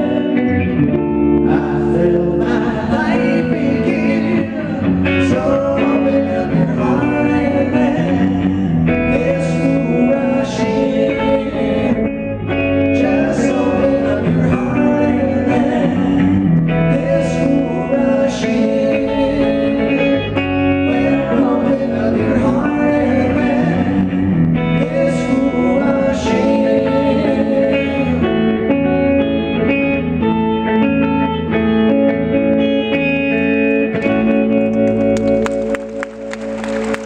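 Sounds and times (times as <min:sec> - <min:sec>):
men singing: 0:00.0 - 0:00.6, 0:01.3 - 0:28.6
bass guitar: 0:00.0 - 0:37.0
electric guitar: 0:00.0 - 0:37.0.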